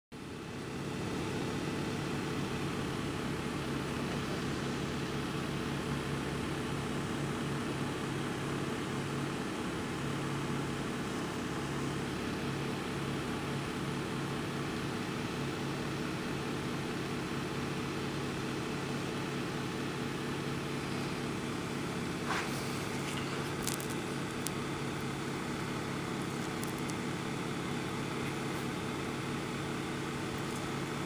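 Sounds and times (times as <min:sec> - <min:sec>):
low machine hum: 0:00.2 - 0:31.0
brief scrape: 0:22.2 - 0:23.4.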